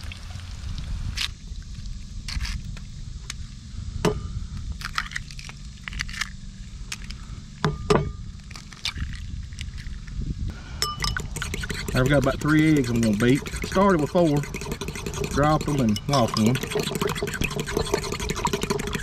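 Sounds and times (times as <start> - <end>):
eggs cracking on bowl rim: 10.8 - 19.0.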